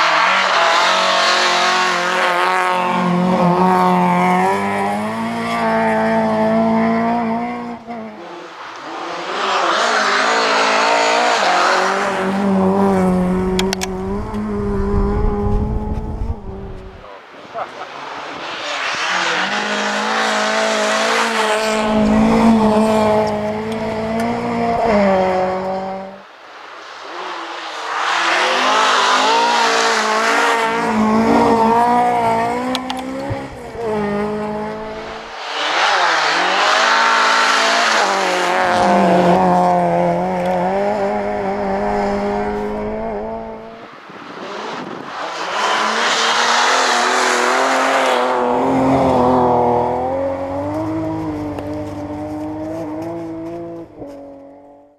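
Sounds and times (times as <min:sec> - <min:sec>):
rally cars revving past: 0:00.0 - 0:54.9.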